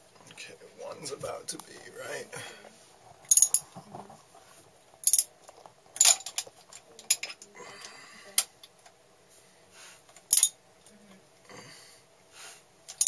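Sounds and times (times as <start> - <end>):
hand tools clinking on metal: 3.3 - 3.7, 5.0 - 5.3, 10.3 - 10.6.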